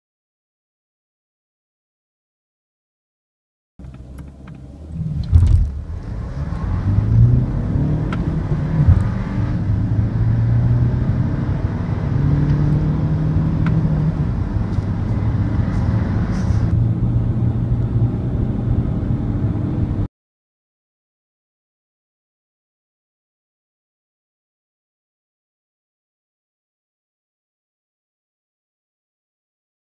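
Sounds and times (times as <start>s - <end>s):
car engine accelerating hard: 3.8s - 20.1s
thump: 5.2s - 5.9s.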